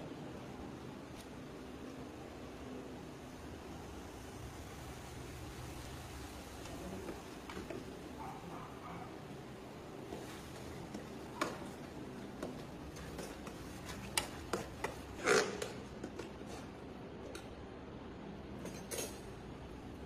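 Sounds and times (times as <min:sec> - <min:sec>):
steady low background noise: 0:00.0 - 0:20.0.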